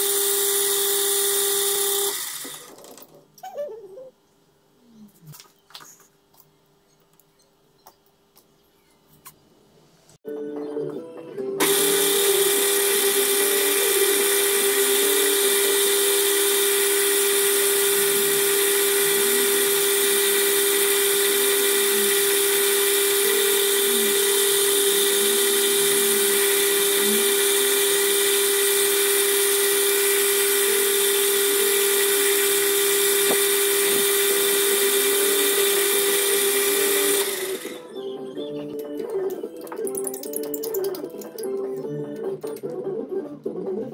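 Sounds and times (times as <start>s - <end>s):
metal lathe whining: 11.6s - 37.9s.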